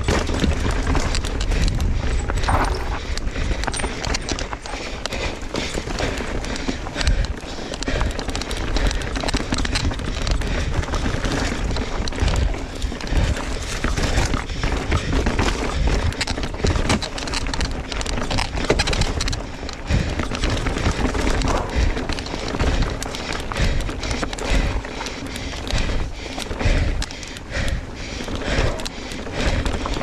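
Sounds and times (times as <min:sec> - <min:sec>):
bike clattering: 0:00.0 - 0:30.0
tyres skittering over dirt and rocks: 0:00.0 - 0:30.0
wind buffeting camera: 0:00.0 - 0:30.0.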